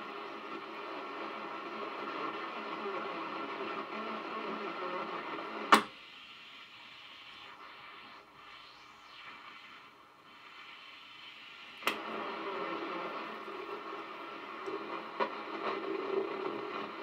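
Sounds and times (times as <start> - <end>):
radio voice amid static: 0.0 - 5.8, 11.9 - 17.0
radio hiss: 0.0 - 17.0.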